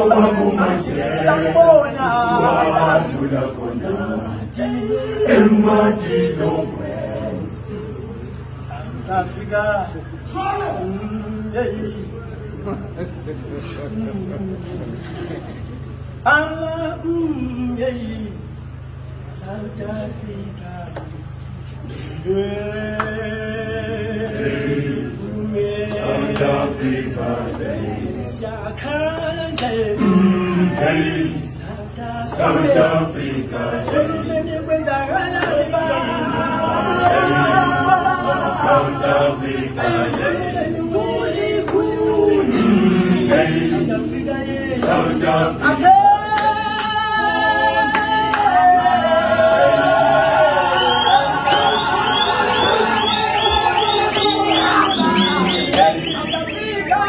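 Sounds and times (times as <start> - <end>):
male choir singing a cappella: 0.0 - 15.6, 19.3 - 21.1, 21.9 - 57.0.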